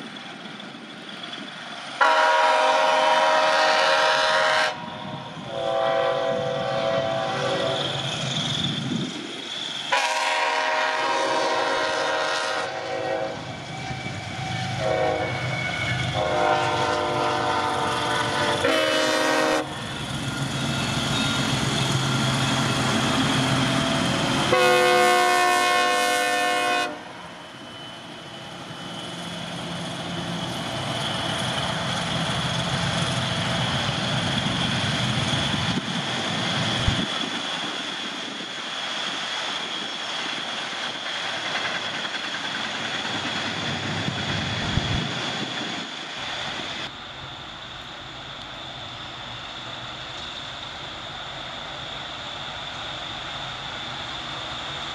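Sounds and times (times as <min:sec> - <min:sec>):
train wheels rumbling on rails: 0:00.0 - 0:54.9
locomotive air horn blasts: 0:02.0 - 0:07.9, 0:09.9 - 0:19.8, 0:24.5 - 0:27.2.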